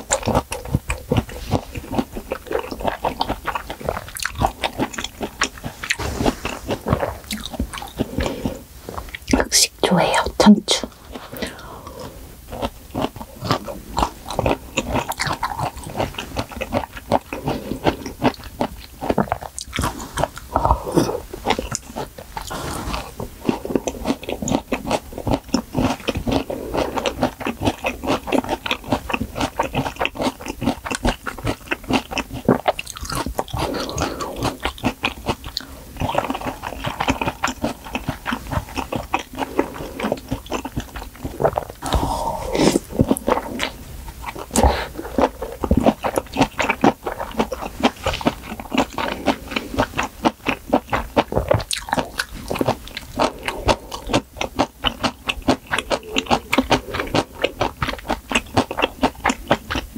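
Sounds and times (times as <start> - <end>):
close-miked chewing: 0.0 - 59.9
wet mouth clicks: 29.8 - 59.9.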